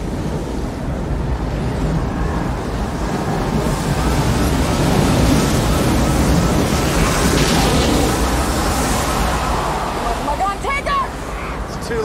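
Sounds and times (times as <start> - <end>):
tornado wind rushing: 0.0 - 12.0.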